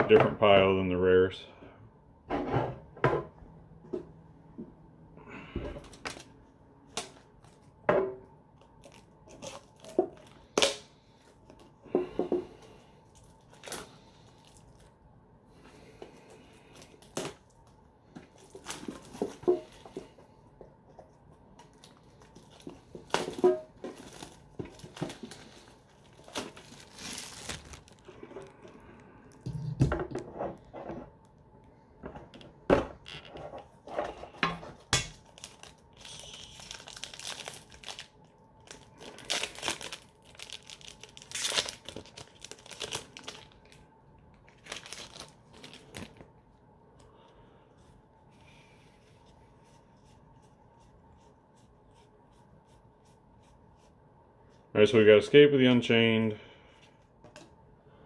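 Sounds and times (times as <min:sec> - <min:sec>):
foil packs crinkling and tearing: 0:08.6 - 0:10.8, 0:13.0 - 0:15.0, 0:16.1 - 0:19.9, 0:21.7 - 0:28.6, 0:35.1 - 0:43.8, 0:44.4 - 0:46.3.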